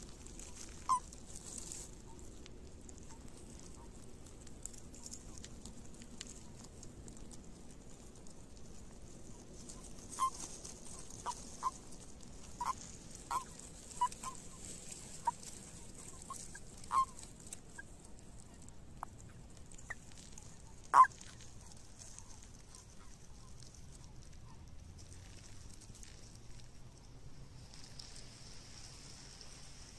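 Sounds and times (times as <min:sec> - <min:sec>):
toads calling: 0:00.0 - 0:02.3, 0:09.6 - 0:23.1.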